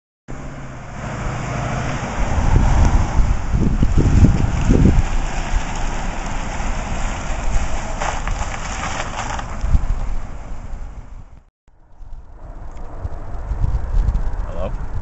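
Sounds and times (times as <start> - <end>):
car tyres hissing on road: 0.5 - 11.0
wind buffeting microphone: 0.8 - 15.0.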